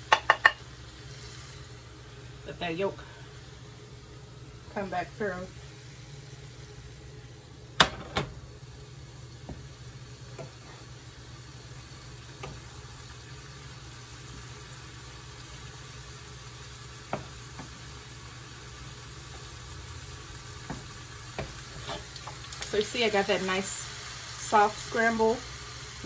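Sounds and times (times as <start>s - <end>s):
soft sizzle: 0.0s - 26.0s
spoon knocking against pan: 0.1s - 0.6s
wooden spoon stirring in skillet: 20.6s - 23.2s.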